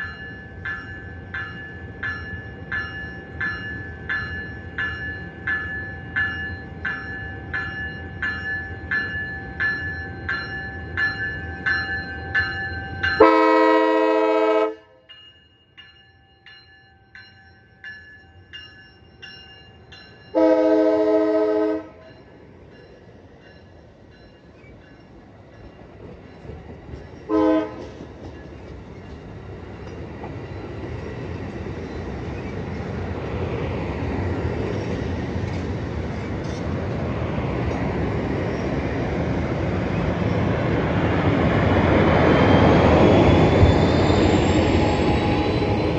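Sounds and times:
train bell ringing: 0:00.0 - 0:36.7, 0:37.4 - 0:45.9
passing train rumble: 0:00.0 - 0:45.9
train horn blasts: 0:13.2 - 0:15.1, 0:20.4 - 0:22.1, 0:27.3 - 0:27.9.

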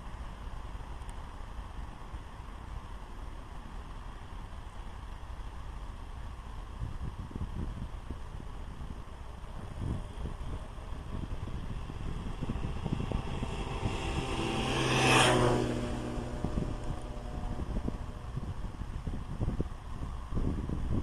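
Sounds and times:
vehicle driving past: 0:09.9 - 0:19.0.

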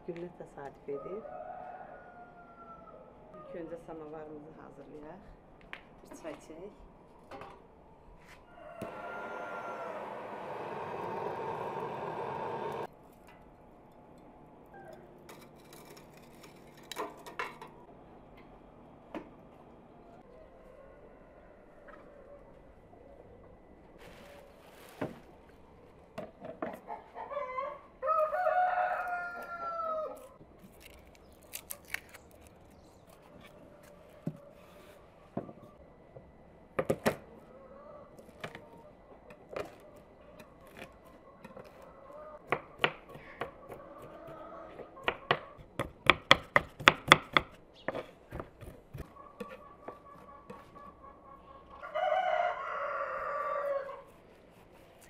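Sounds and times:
rooster crowing: 0:00.9 - 0:03.2, 0:08.4 - 0:12.9, 0:27.2 - 0:30.4, 0:51.8 - 0:54.1.

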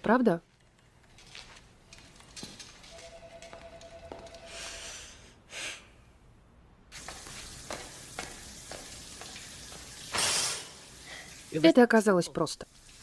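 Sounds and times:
steady hiss: 0:06.9 - 0:11.9
bare footsteps on tiled floor: 0:07.0 - 0:10.0.

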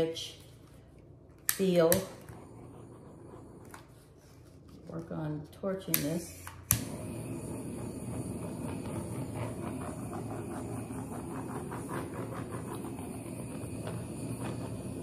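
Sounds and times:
torch flame hissing: 0:01.6 - 0:04.4, 0:06.1 - 0:15.0.

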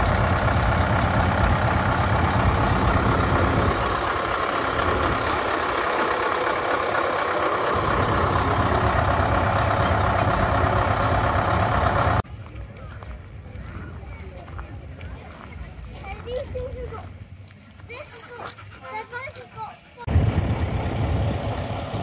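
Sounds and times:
low rumble: 0:00.0 - 0:06.4, 0:07.7 - 0:12.2, 0:20.1 - 0:22.0
truck engine idling: 0:00.0 - 0:12.2, 0:18.0 - 0:22.0.

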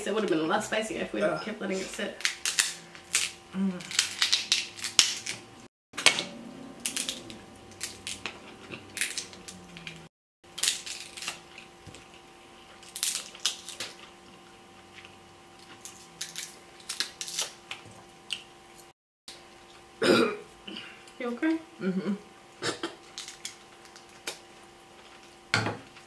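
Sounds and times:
crab shells cracking: 0:02.2 - 0:06.2, 0:06.8 - 0:12.0, 0:12.8 - 0:14.1, 0:15.7 - 0:18.5, 0:23.0 - 0:24.5.

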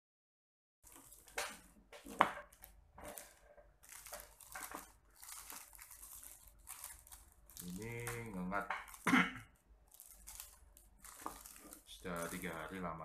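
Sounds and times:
plastic wrapping crinkling: 0:00.8 - 0:13.0.

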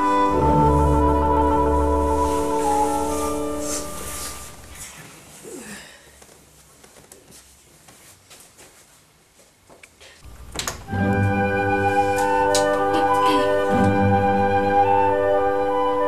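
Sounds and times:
background music of held chords: 0:00.0 - 0:04.5, 0:10.8 - 0:16.0.

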